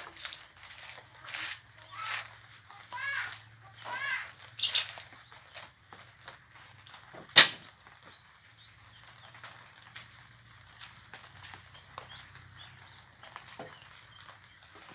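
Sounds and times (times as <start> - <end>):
coconut husk ripping: 0.0 - 8.1
small birds chirping: 0.0 - 14.9
bird calling: 1.9 - 5.6.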